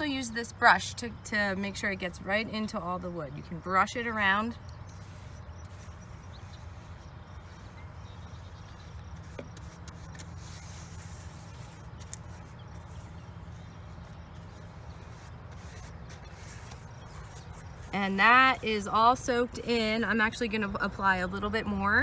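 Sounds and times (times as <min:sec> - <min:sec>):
paintbrush strokes on wood: 0:04.2 - 0:19.4.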